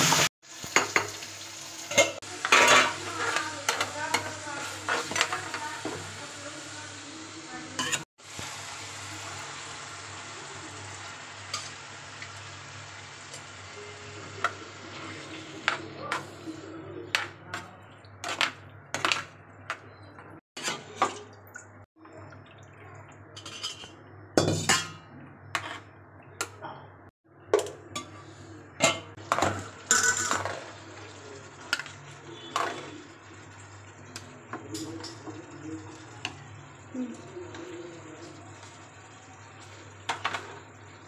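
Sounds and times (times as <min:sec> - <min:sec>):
spoon scraping metal pot: 0:20.6 - 0:21.2, 0:23.4 - 0:24.0, 0:24.6 - 0:25.9.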